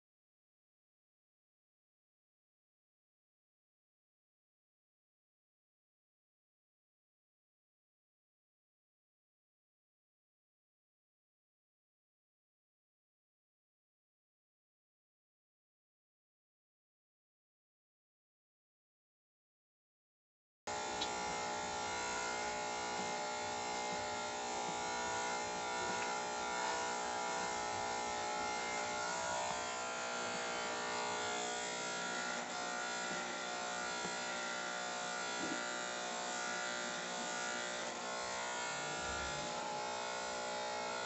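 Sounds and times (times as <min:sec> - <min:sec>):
electric hair clipper buzzing: 0:20.7 - 0:41.0.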